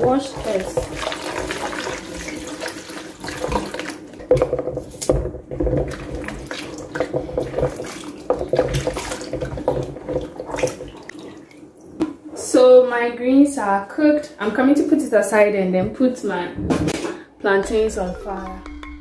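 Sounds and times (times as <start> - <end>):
water sloshing and splashing: 0.0 - 12.3
water pouring into bowl: 0.1 - 4.1.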